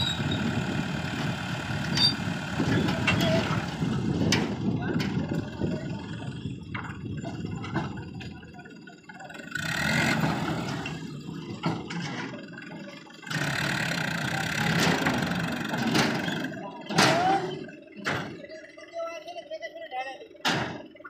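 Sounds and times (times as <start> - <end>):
tractor diesel engine revving: 0.0 - 19.0.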